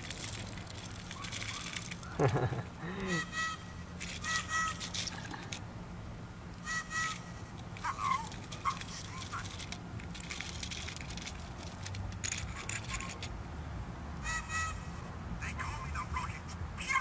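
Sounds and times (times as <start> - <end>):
bird honking: 3.2 - 5.1, 6.6 - 8.8, 14.2 - 15.1.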